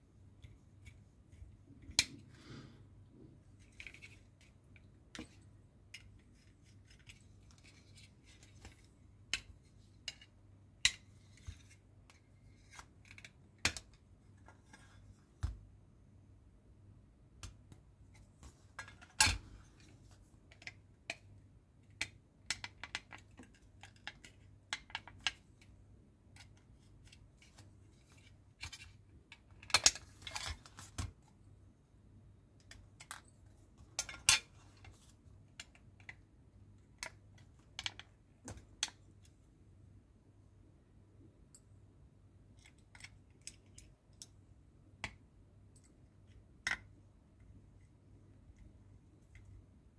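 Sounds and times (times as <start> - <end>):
plastic parts clicking and knocking: 17.4 - 31.3, 32.6 - 39.1.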